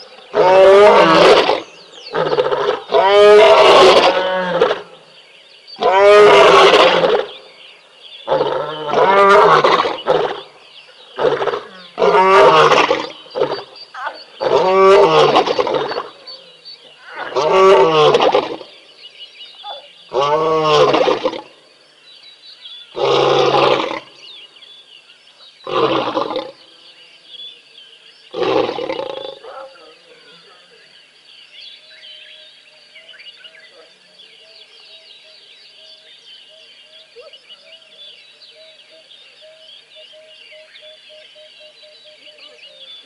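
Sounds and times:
lion roaring: 0.3s - 5.0s, 5.8s - 7.3s, 8.2s - 10.5s, 11.2s - 16.3s, 17.0s - 18.7s, 23.0s - 24.1s, 25.6s - 26.6s, 28.3s - 30.0s.

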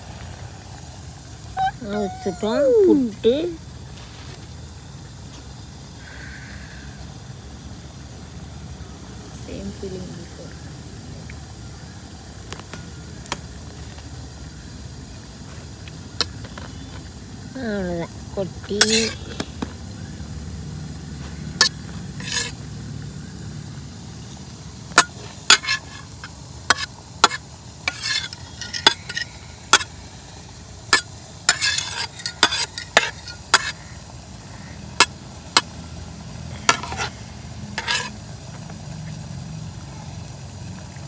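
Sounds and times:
metal spatula scraping a plate: 18.8s - 19.3s, 21.6s - 22.6s, 25.0s - 29.9s, 30.9s - 33.8s, 36.7s - 37.1s, 37.8s - 38.2s.

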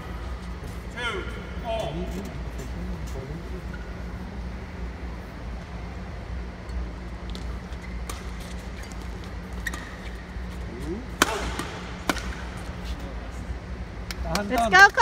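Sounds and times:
low hall hum: 0.0s - 15.0s
racket smacking shuttlecock: 7.2s - 12.9s
shoe squeak on court floor: 7.7s - 10.3s.

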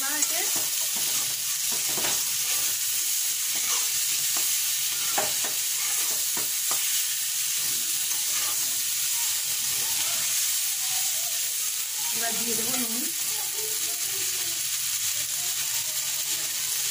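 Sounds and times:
vegetables sizzling in oil: 0.0s - 16.9s
spatula scraping and tapping pan: 0.1s - 8.8s.

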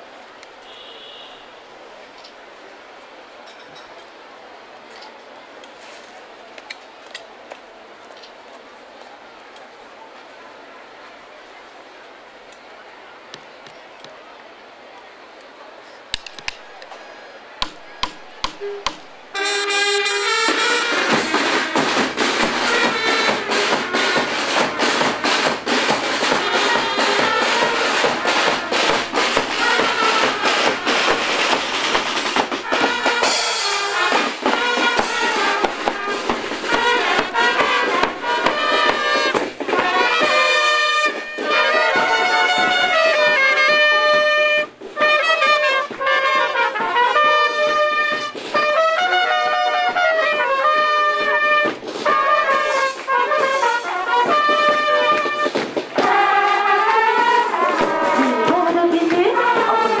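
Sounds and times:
bass and snare drum beats: 16.1s - 60.0s
brass instruments playing: 17.7s - 60.0s.

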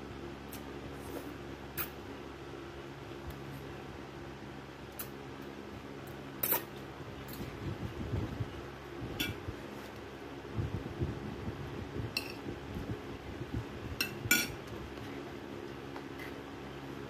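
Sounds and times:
spoon and fork clinking on dishes: 14.0s - 14.6s.

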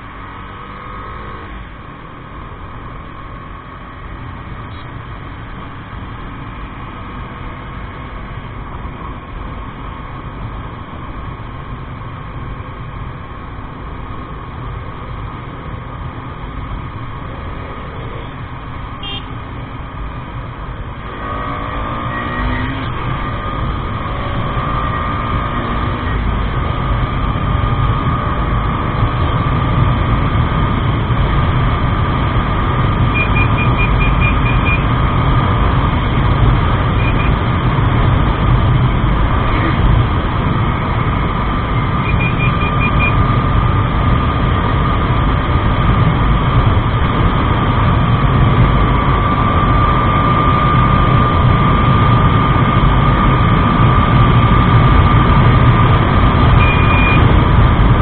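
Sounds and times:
motorcycle engine running: 22.9s - 58.0s
quick high beeps: 33.1s - 34.9s, 42.0s - 43.2s, 56.6s - 57.3s
wind rumble on microphone: 43.1s - 58.0s.

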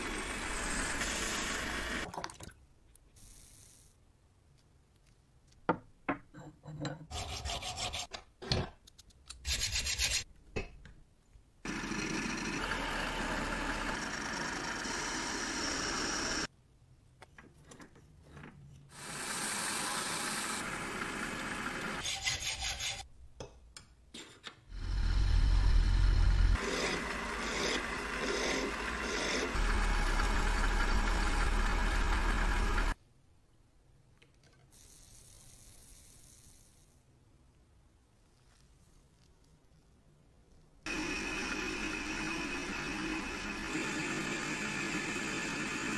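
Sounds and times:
loud low hum: 29.6s - 33.0s.

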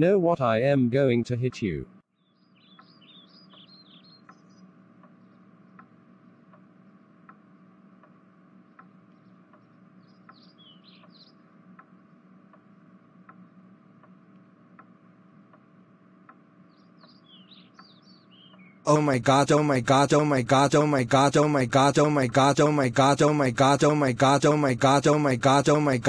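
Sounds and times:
birds chirping: 2.2s - 6.5s, 8.7s - 12.2s, 16.5s - 26.0s
clock ticking: 18.9s - 26.0s
steady low hum: 18.9s - 26.0s.

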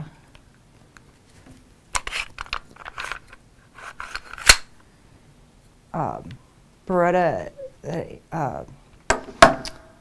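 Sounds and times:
pistol parts clicking and rattling: 2.0s - 4.7s.

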